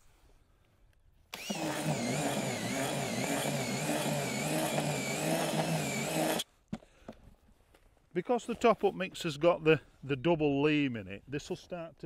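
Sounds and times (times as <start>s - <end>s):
cordless drill whisk churning: 1.4s - 6.4s.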